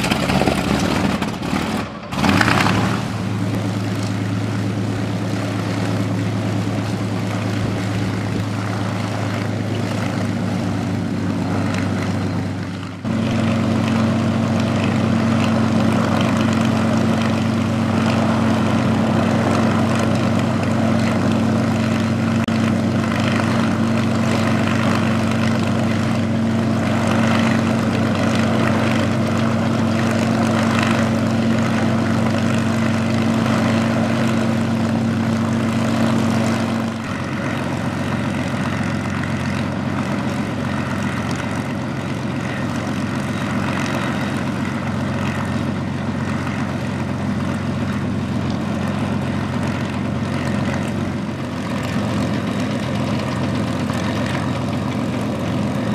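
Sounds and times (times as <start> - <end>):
aircraft engine running: 0.0 - 55.9.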